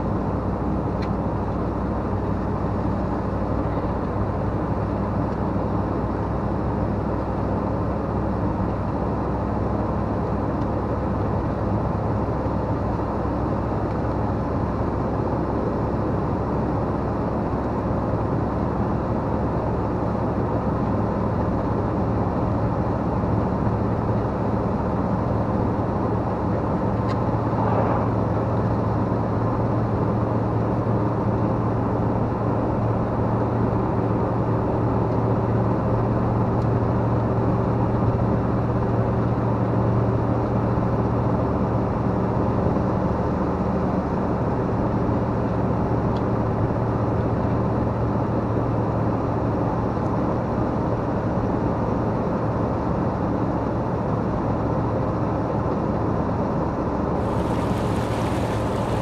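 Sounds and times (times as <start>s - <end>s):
vehicle engine drone: 0.0s - 59.0s
tyre and road noise: 25.6s - 30.2s, 57.1s - 59.0s.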